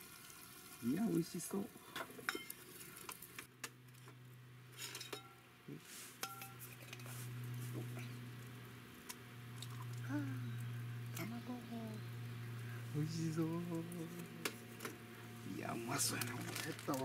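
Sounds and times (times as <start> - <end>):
low steady hum: 0.0 - 17.0
metal cup clinks and taps: 6.2 - 7.0.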